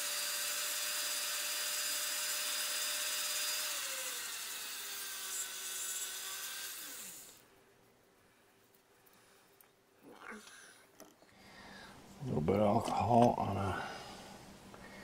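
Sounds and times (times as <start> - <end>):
rotary tool grinding whine: 0.0 - 7.4.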